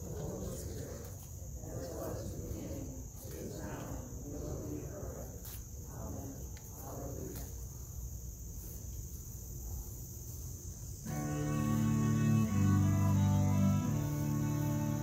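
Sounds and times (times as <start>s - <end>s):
faint voices murmuring: 0.0s - 7.7s
insects chirring: 0.0s - 15.0s
instrumental music low notes: 11.1s - 15.0s.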